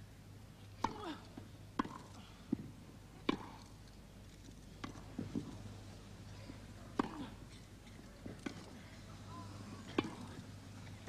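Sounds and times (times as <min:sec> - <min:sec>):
tennis ball bouncing on grass: 0:01.7 - 0:03.7, 0:04.8 - 0:05.5, 0:06.9 - 0:07.3, 0:09.9 - 0:10.3
tennis ball struck by racket: 0:01.8 - 0:02.1, 0:03.2 - 0:03.6, 0:10.0 - 0:10.2.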